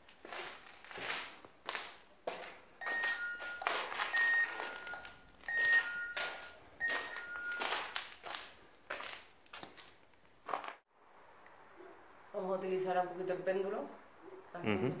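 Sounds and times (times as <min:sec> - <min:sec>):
footsteps crunching on debris: 0:00.0 - 0:10.8.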